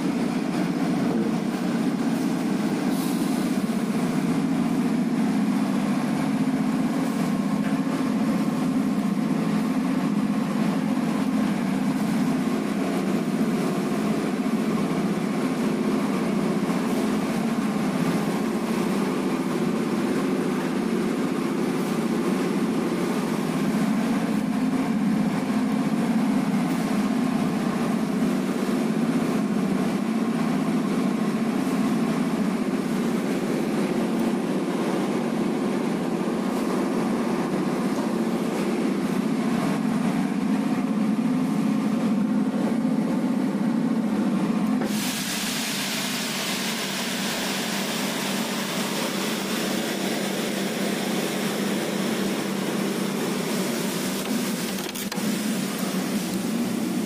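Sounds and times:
steady low machine hum: 49.2s - 57.0s.

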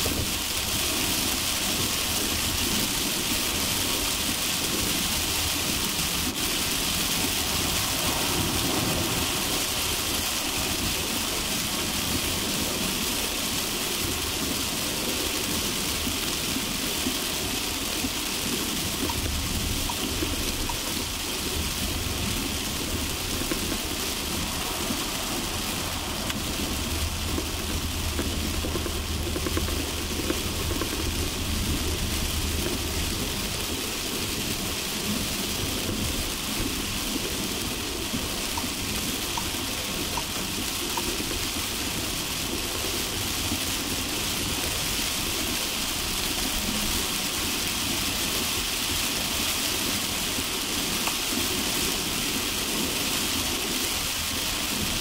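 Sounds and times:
car road and engine rumble: 0.0s - 55.0s
heavy rain hissing: 0.0s - 55.0s.

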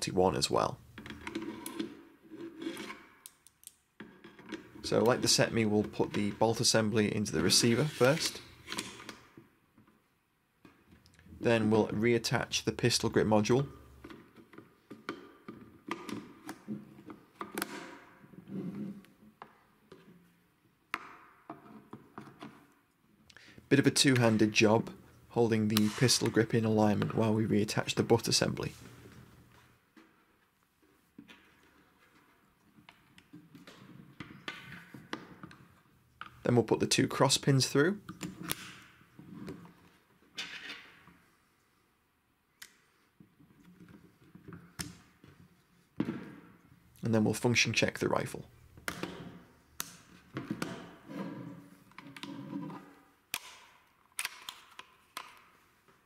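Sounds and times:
rifle handling scrape: 7.6s - 9.0s.

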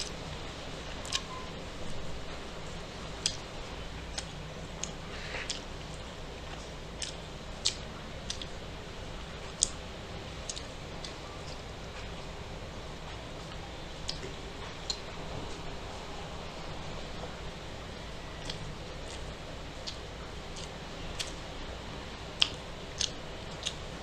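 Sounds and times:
mouth clicks and smacks: 1.0s - 2.0s, 3.2s - 3.5s, 4.1s - 8.6s, 9.5s - 9.8s, 10.4s - 12.1s, 18.4s - 21.4s, 22.4s - 23.9s
person chewing crunchy food: 4.1s - 8.6s, 18.4s - 21.4s, 22.4s - 23.9s.

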